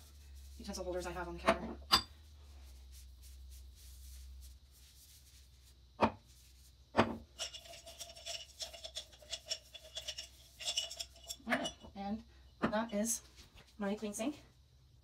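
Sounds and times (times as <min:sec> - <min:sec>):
cloth rag rubbing: 0:00.0 - 0:01.2, 0:02.4 - 0:06.8
containers knocking on countertop: 0:07.0 - 0:07.2.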